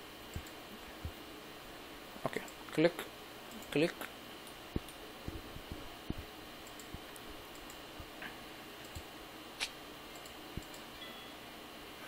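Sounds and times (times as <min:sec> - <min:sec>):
computer mouse clicking: 0:06.1 - 0:07.8, 0:08.8 - 0:10.9.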